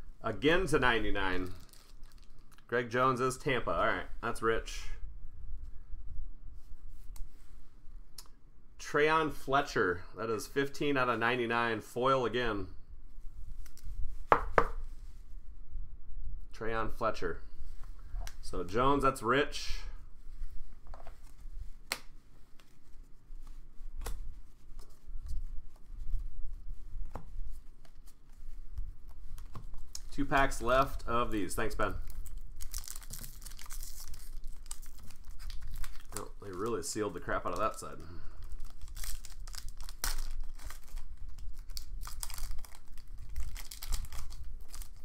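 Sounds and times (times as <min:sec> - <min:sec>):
foil wrapper crinkling and tearing: 0:01.4 - 0:02.7, 0:31.6 - 0:45.0.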